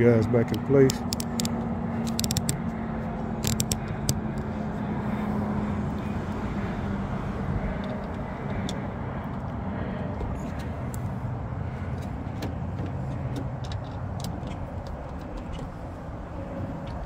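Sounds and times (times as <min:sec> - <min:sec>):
outdoor background rumble: 0:00.0 - 0:17.0
handling clicks and knocks: 0:00.5 - 0:02.7, 0:11.9 - 0:15.8
low hum: 0:00.5 - 0:17.0.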